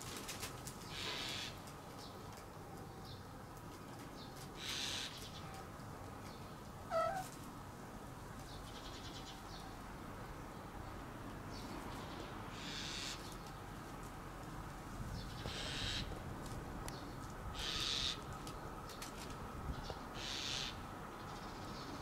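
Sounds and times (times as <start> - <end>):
cat meowing: 6.9 - 7.3.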